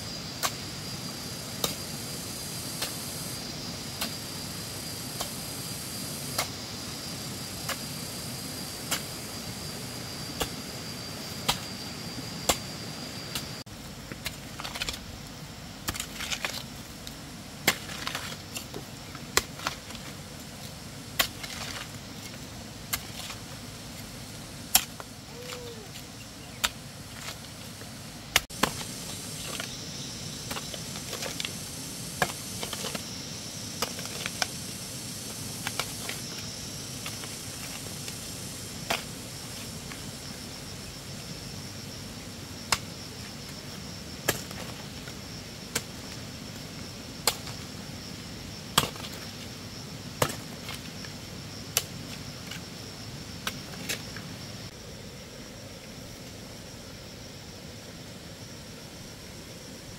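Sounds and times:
insects buzzing: 0.0 - 59.9
hoe chopping stony soil: 17.6 - 20.1, 21.1 - 23.4, 28.3 - 31.5, 32.1 - 33.0, 33.8 - 34.6, 44.2 - 44.9, 47.2 - 47.6, 50.2 - 50.8.

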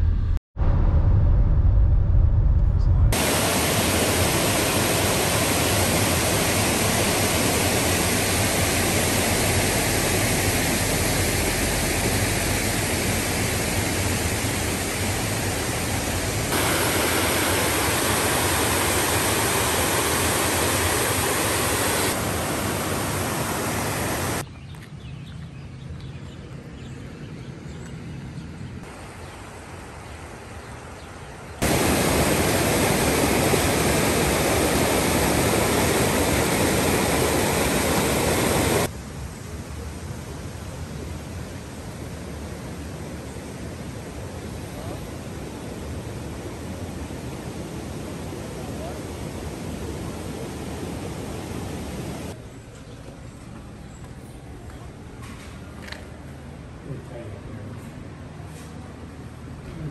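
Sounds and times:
water rushing over weir: 3.2 - 24.4, 31.6 - 38.9, 40.4 - 52.4.

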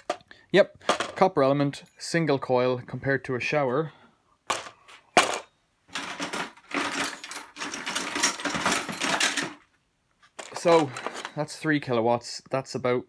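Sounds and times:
metal parts knocking: 4.5 - 9.7
metal parts clinking and clattering: 4.5 - 11.4.

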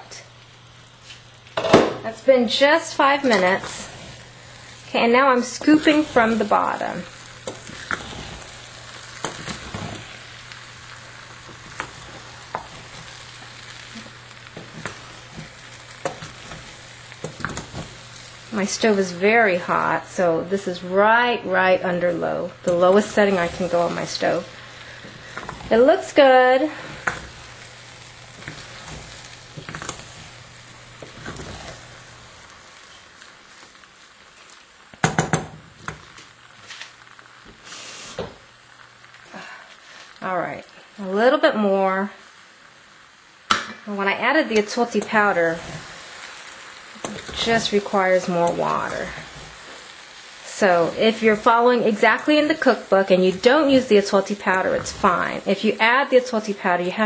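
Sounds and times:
rice sizzling in hot pan: 0.0 - 57.0
spoon scraping a pan: 2.9 - 4.3, 4.9 - 10.6, 22.7 - 24.4, 26.7 - 32.0
spatula scraping metal pan: 4.9 - 10.3, 22.7 - 24.4.

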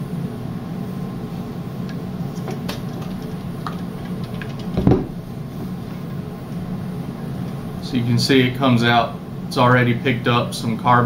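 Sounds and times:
loud knock: 4.8 - 5.2.

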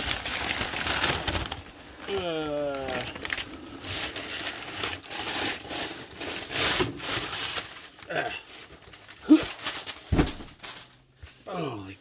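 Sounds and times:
cardboard and paper rustling: 0.0 - 11.6
man humming: 2.1 - 3.2.

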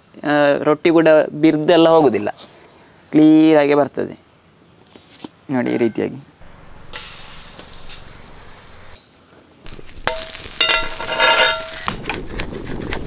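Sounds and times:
faint sizzle: 6.4 - 11.9
metal spatula scraping griddle: 9.7 - 12.0.

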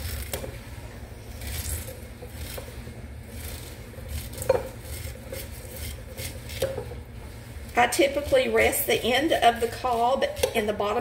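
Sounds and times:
knife scraping corn cob: 1.3 - 7.0, 7.8 - 10.7.

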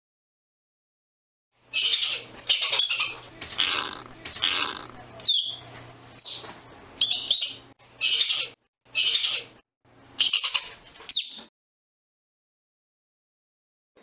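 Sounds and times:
ground squirrel raspy chatter: 1.7 - 5.5
ground squirrel chirps: 1.7 - 5.6.

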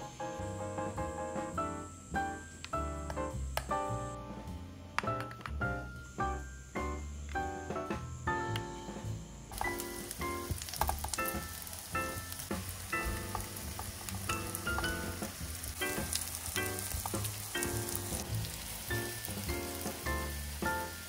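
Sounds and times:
background music: 0.0 - 21.0
food sizzling in oil: 9.5 - 21.0.

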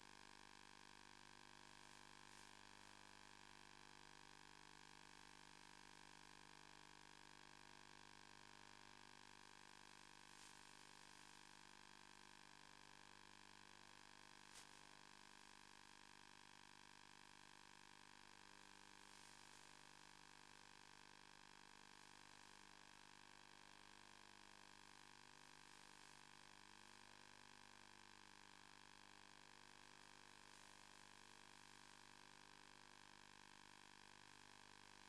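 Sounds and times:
faint electrical hum and hiss: 1.5 - 3.4, 9.8 - 15.7, 18.7 - 20.6, 24.8 - 27.1, 29.9 - 32.0.

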